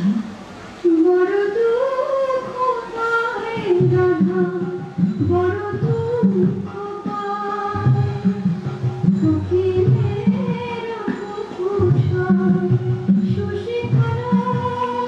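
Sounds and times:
instrumental accompaniment: 0.0 - 15.0.

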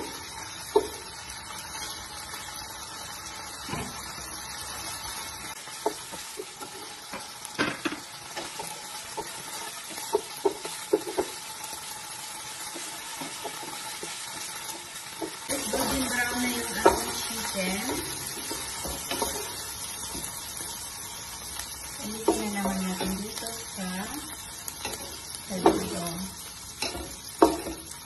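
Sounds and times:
wooden spoon tapping and scraping pot: 0.0 - 1.0, 5.8 - 11.4, 15.2 - 20.4, 22.0 - 23.5, 24.2 - 26.1, 26.8 - 28.0
chicken sizzling in hot oil: 0.0 - 28.0.

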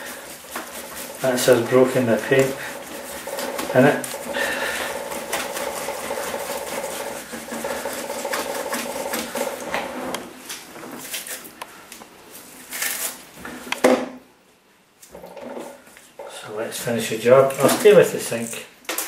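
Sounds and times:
paintbrush rubbing in sink: 0.0 - 10.2.

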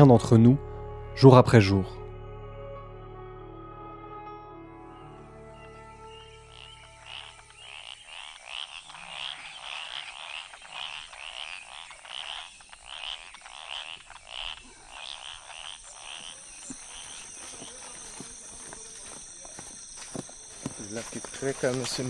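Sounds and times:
frog croaking: 6.0 - 22.0.

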